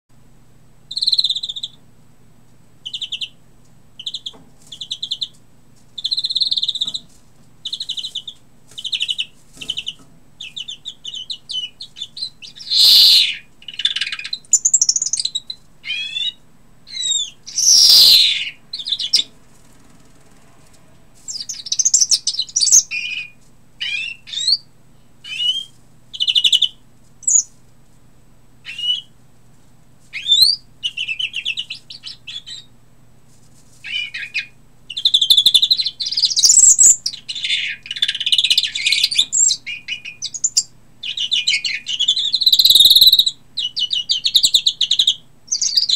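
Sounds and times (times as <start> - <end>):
finch trilling and twittering: 0.9 - 1.8, 2.8 - 3.4, 4.0 - 5.3, 6.0 - 7.0, 7.6 - 19.3, 21.3 - 24.6, 25.2 - 27.5, 28.6 - 29.1, 30.1 - 32.7, 33.8 - 45.9.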